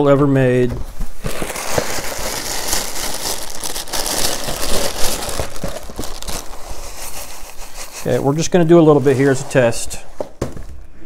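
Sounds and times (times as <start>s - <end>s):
plastic bag crinkling: 1.1s - 8.7s.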